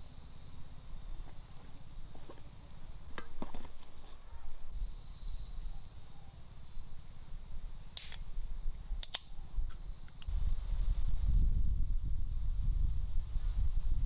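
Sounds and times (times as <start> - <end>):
insect chorus buzzing: 0.0 - 10.3
sharp clicks: 7.9 - 10.3
soda can tab snapping open: 8.0 - 8.2, 9.0 - 10.3
wind rumble on microphone: 10.3 - 14.0.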